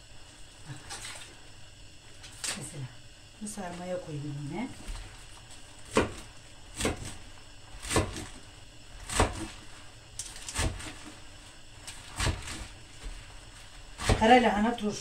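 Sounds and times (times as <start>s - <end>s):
knife chopping on wooden board: 5.8s - 7.2s, 7.8s - 8.4s, 9.0s - 9.7s, 10.3s - 11.1s, 11.9s - 13.2s, 14.0s - 14.4s.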